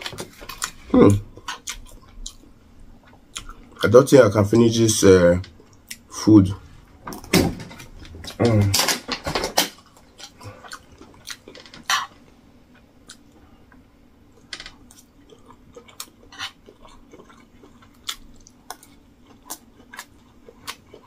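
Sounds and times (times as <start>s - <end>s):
mouth chewing sounds: 0.5s - 3.9s, 14.8s - 21.0s.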